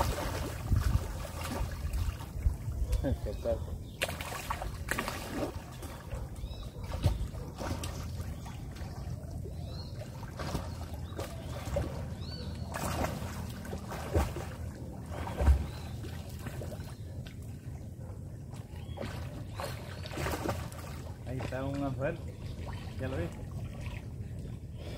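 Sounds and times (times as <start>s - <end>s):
swimmers splashing: 4.0s - 16.9s.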